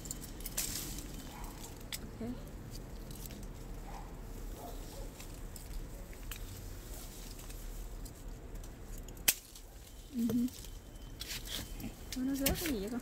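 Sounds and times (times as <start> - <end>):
pruning shears snipping: 0.0 - 3.9, 7.3 - 13.0
leaves and twigs rustling: 0.0 - 13.0.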